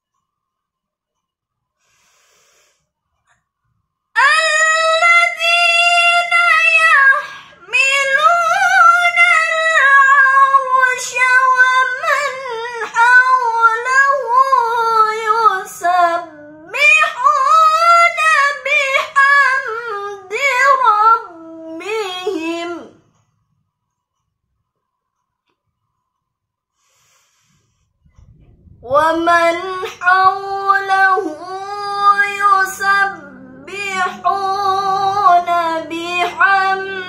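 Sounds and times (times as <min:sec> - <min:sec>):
woman breathing: 0:01.8 - 0:03.0, 0:26.7 - 0:28.2
woman chanting recitation: 0:04.2 - 0:23.0, 0:28.4 - 0:37.0.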